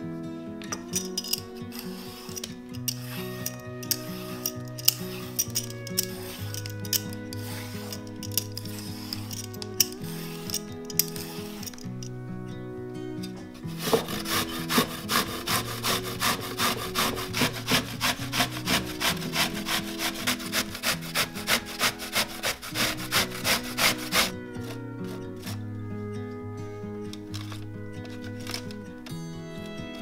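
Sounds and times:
soft background music: 0.0s - 30.0s
vegetables grated on a grater: 13.8s - 24.4s.

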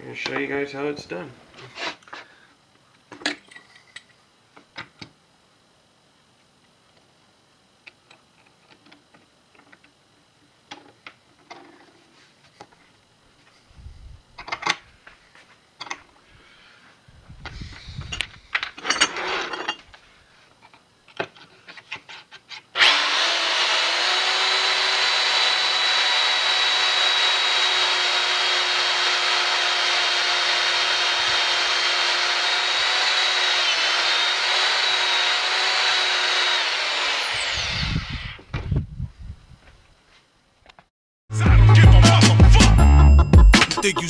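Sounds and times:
power drill boring into wood: 22.8s - 38.4s.

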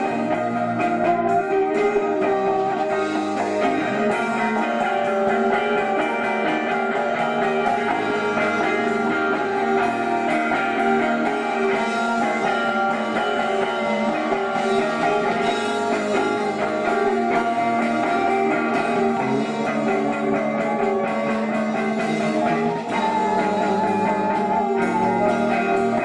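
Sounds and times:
drum kit: 0.0s - 26.0s
electric guitar: 0.0s - 26.0s
live rock band playing: 0.0s - 26.0s.

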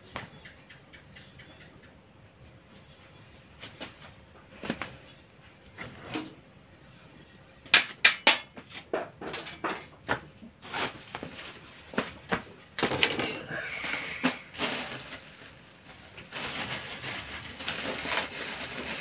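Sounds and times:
household things knocking and clattering: 7.7s - 10.3s, 12.3s - 13.4s
scraping rustle: 10.6s - 12.5s, 13.2s - 19.0s.

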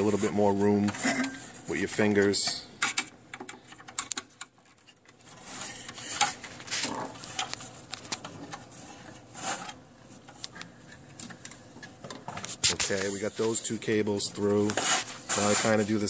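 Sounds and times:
cables scraping and rustling: 4.6s - 16.0s.

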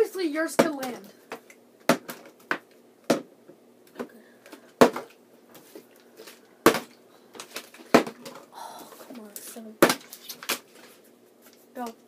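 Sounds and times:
plastic bottles knocking on wood: 7.8s - 8.4s.

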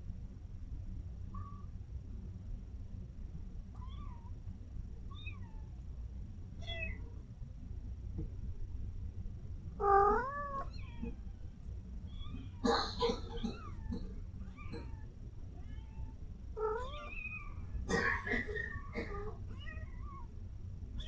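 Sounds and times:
kittens mewing: 9.8s - 11.4s, 12.1s - 20.3s.

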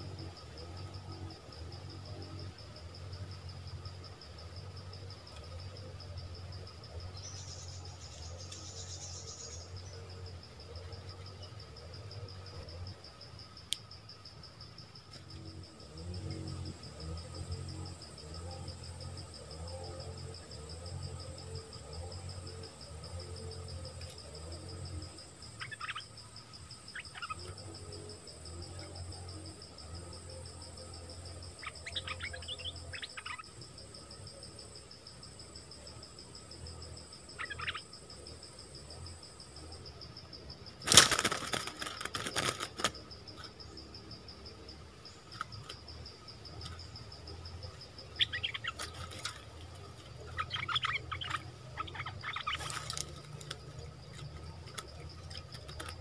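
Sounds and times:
high insect drone: 0.0s - 56.0s
bird chirps: 7.1s - 10.0s, 31.6s - 33.4s, 37.4s - 37.8s, 48.1s - 49.0s, 50.2s - 53.1s
birds flapping in cage: 40.8s - 43.4s, 48.5s - 50.5s, 52.1s - 56.0s.

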